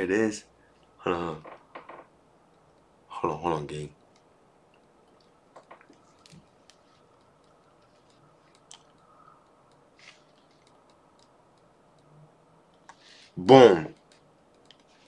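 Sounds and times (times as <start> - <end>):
faint computer mouse clicks: 4.0 - 12.1, 13.9 - 15.0.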